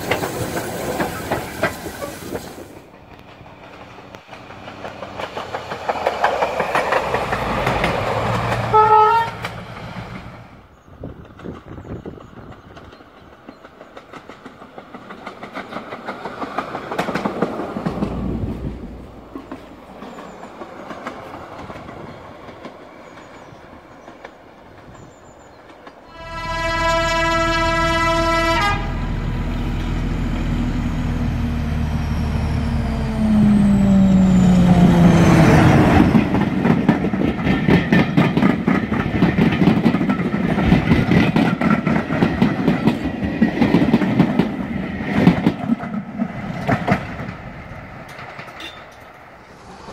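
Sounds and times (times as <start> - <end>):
train carriages clattering: 0.0 - 10.4, 11.1 - 28.8, 35.0 - 49.9
train wheels clicking over rail joints: 0.0 - 26.7, 33.4 - 49.9
diesel locomotive engine: 0.0 - 49.9
locomotive horn blast: 8.7 - 9.5, 26.1 - 29.2.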